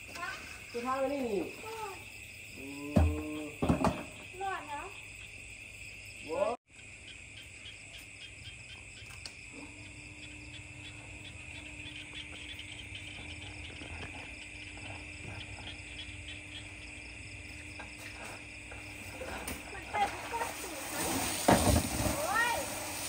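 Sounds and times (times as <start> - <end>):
crickets trilling: 0.0 - 23.0
low steady hum: 8.5 - 20.5.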